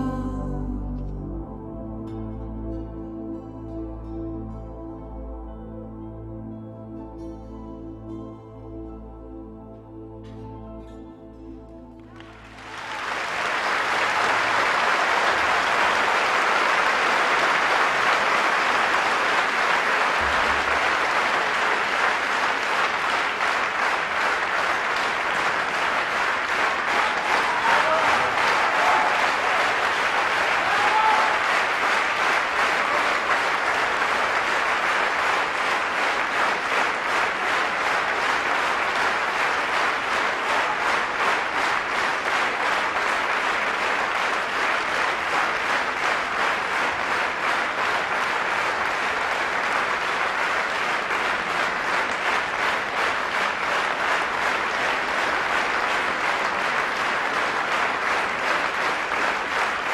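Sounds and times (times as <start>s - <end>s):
audience applauding: 12.0s - 59.9s.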